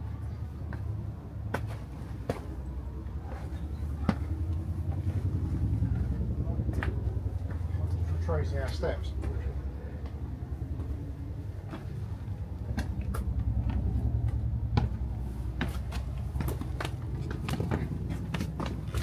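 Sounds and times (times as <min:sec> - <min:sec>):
steady low rumble: 0:00.0 - 0:19.0
footsteps on stone stairs: 0:00.6 - 0:06.1, 0:10.0 - 0:19.0.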